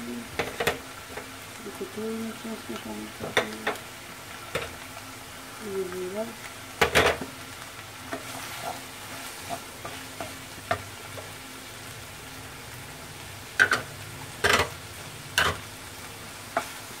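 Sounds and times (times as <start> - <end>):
meat sizzling in a frying pan: 0.0 - 17.0
spatula scraping and knocking pan: 8.1 - 10.8.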